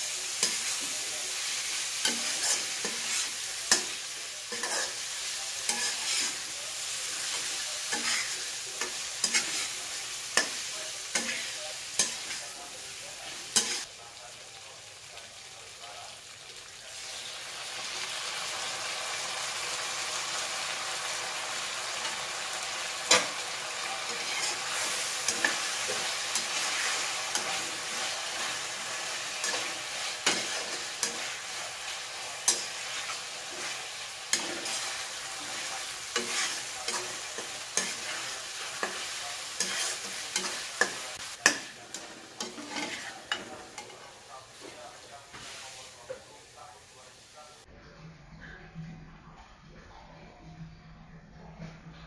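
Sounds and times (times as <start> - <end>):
metal spatula scraping a pan: 0.0 - 12.5, 22.0 - 44.6
food sizzling in a wok: 0.0 - 47.7.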